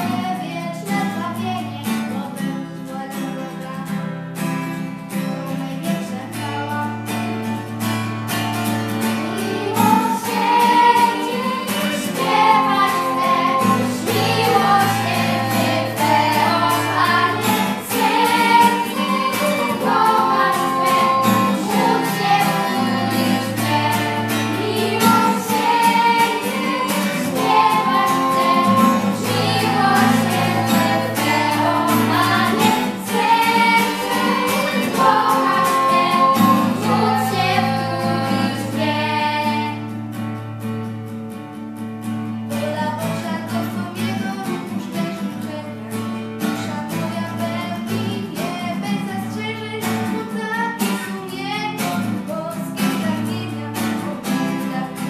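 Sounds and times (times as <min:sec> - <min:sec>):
girls singing together: 0:00.0 - 0:04.0, 0:05.5 - 0:07.3, 0:08.8 - 0:40.0, 0:42.5 - 0:55.0.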